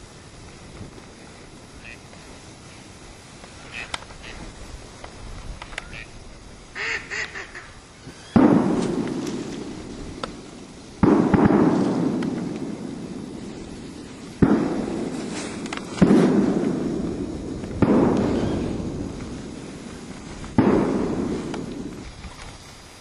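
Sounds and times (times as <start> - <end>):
shotgun shots echoing: 8.3 - 10.4, 11.0 - 13.4, 14.4 - 18.8, 20.5 - 22.0.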